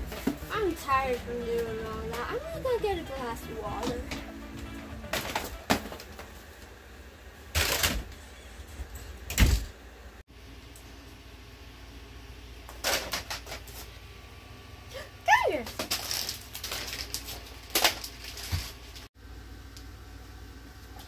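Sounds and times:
steady low hum: 0:00.0 - 0:12.9.

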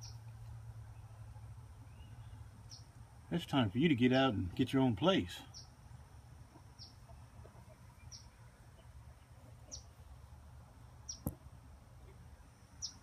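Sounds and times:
bird chirping: 0:00.0 - 0:03.0, 0:05.4 - 0:10.2, 0:11.0 - 0:11.4, 0:12.0 - 0:13.0
low steady rumble: 0:00.0 - 0:13.0.

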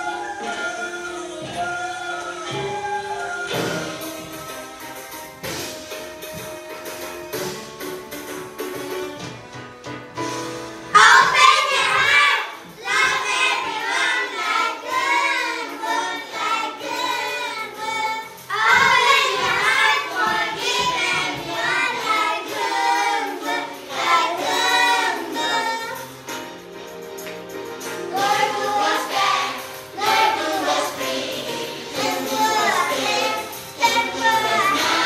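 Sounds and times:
music backing track: 0:00.0 - 0:35.0
children singing in unison: 0:11.0 - 0:26.1, 0:28.0 - 0:35.0.

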